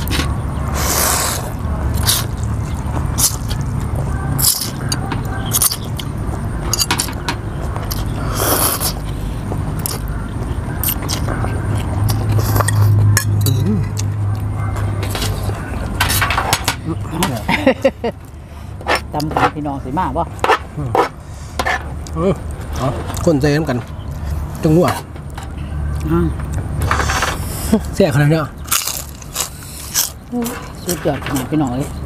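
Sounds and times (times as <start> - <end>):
chewing and mouth sounds: 0.0 - 16.2, 28.6 - 32.0.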